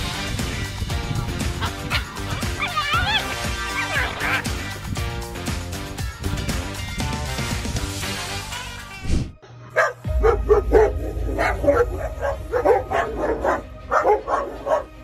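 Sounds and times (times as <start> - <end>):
background music: 0.0 - 15.0
dogs barking rapidly: 1.0 - 4.9, 9.8 - 15.0
low rumble: 10.1 - 14.3.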